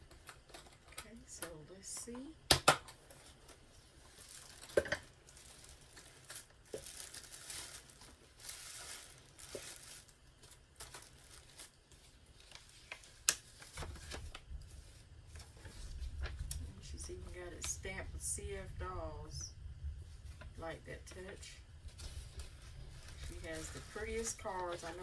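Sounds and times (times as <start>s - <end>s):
paper rustling and crinkling: 3.0s - 16.6s, 21.2s - 25.0s.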